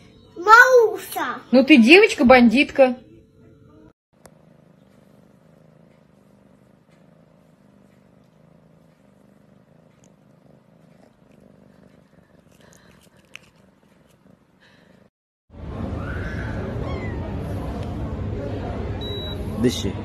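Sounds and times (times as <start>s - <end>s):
cat purring: 3.0s - 15.2s.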